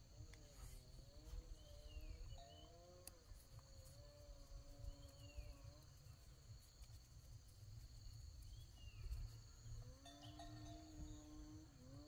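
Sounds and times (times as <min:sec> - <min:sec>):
high insect trill: 0:00.0 - 0:12.0
faint wavering tones: 0:00.5 - 0:06.3, 0:08.5 - 0:12.0.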